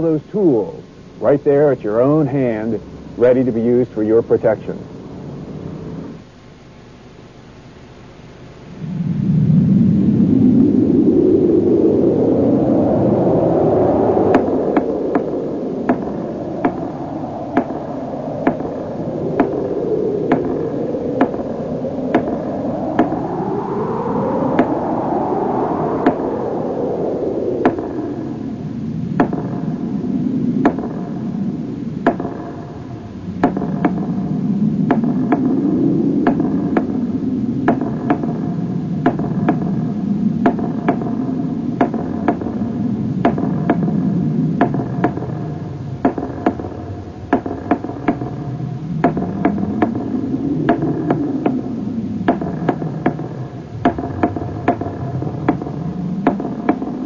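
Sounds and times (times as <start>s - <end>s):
whooshing synth pad: 8.4s - 57.0s.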